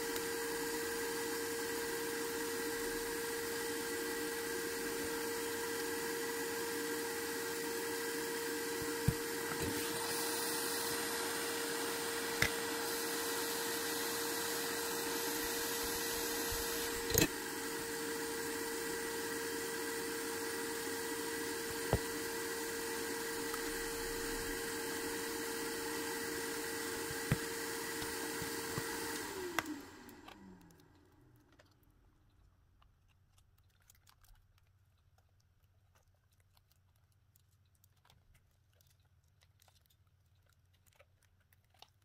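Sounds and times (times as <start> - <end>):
electric tool motor humming: 0.0 - 30.5.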